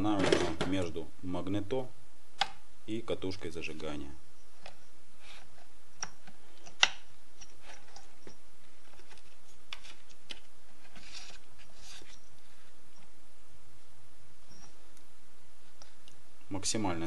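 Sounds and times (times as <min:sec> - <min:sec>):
paper rustling: 0:08.7 - 0:12.2.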